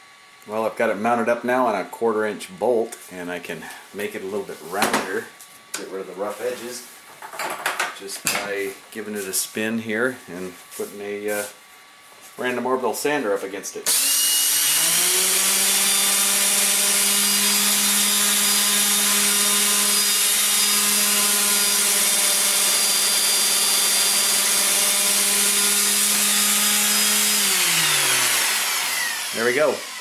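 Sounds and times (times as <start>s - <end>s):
motor hum: 13.9s - 30.0s.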